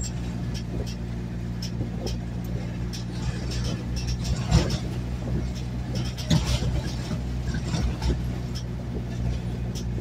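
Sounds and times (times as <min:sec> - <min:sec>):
car engine and road drone: 0:00.0 - 0:10.0
light clicks and rattles: 0:00.0 - 0:10.0.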